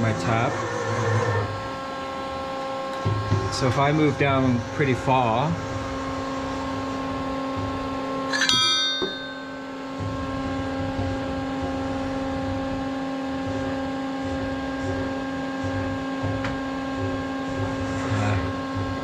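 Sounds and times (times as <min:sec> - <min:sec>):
milling machine hum: 0:00.0 - 0:19.0
sharp metallic ring: 0:08.3 - 0:10.0.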